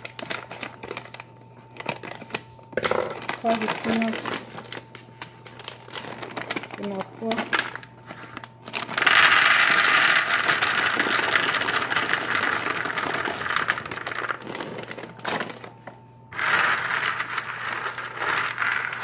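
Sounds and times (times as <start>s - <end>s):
peanuts rattling as spread: 8.7s - 15.6s, 16.3s - 19.0s
peanuts pouring onto metal tray: 9.0s - 14.3s, 16.4s - 19.0s.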